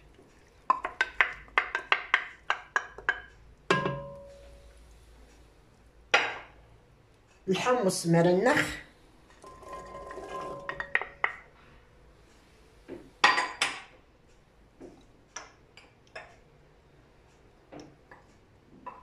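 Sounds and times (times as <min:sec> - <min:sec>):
kitchenware knocking: 0:00.7 - 0:04.4, 0:09.5 - 0:11.5.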